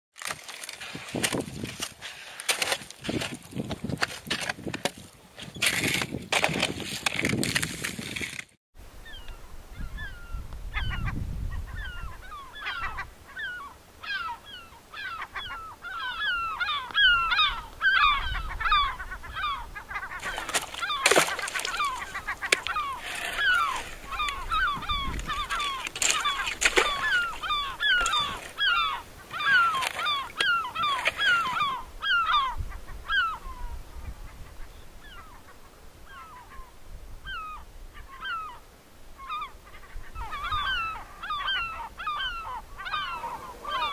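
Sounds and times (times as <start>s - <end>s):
ski and pole scraping on ice: 0.2s - 8.6s, 20.2s - 28.6s
chorus of sea ducks calling: 9.0s - 38.6s, 39.2s - 43.9s.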